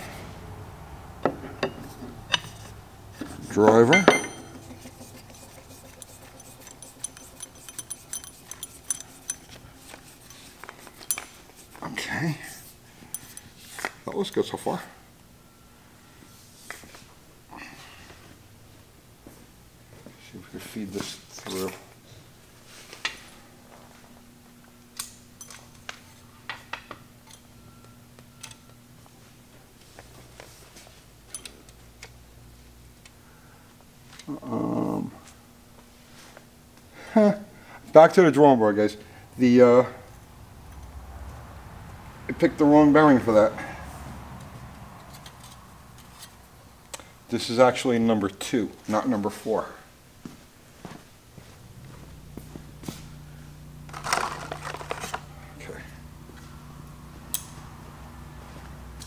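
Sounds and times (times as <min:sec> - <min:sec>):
metallic clinks and knocks: 0:03.7 - 0:09.6.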